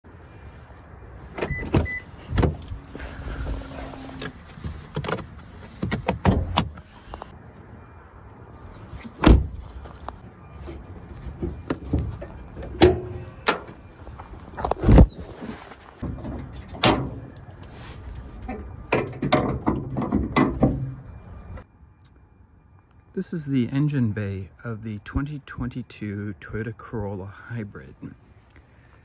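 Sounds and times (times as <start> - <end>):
car door opening: 1.3 - 6.9, 9.0 - 9.8
car bonnet clunks and knocks: 18.9 - 21.0.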